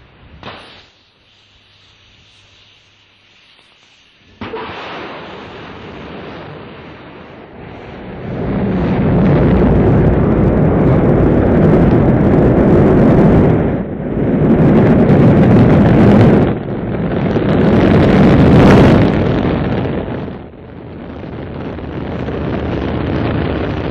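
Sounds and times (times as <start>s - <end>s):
rocket engines rumbling: 0.0s - 23.9s.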